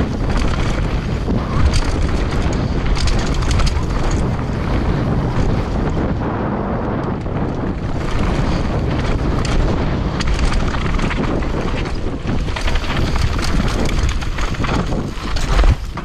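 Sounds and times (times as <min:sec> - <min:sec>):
bike rattling: 0:00.0 - 0:16.0
wind rushing over microphone: 0:00.0 - 0:16.0
tyres crunching over rock: 0:08.0 - 0:16.0.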